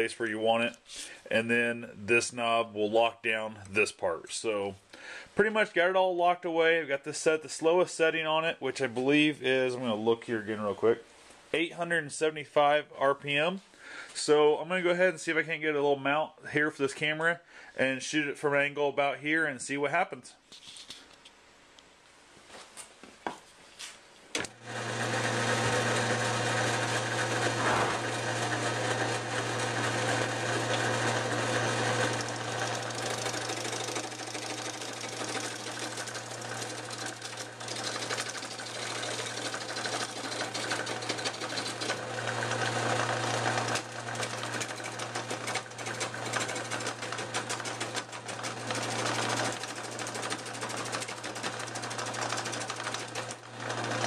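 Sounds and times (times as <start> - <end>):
lathe motor humming: 24.4 - 54.0
turning tool scraping log: 24.6 - 54.0.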